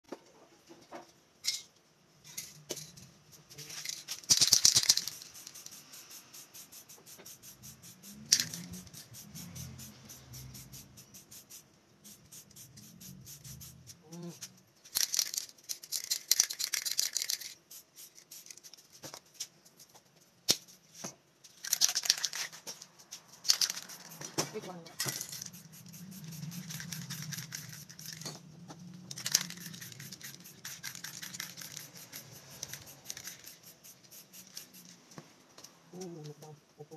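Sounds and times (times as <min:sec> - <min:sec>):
spray can rattling: 0:03.6 - 0:19.4, 0:21.5 - 0:35.1
spray can hissing: 0:04.2 - 0:14.0, 0:16.0 - 0:18.9, 0:23.4 - 0:28.3, 0:29.1 - 0:35.0.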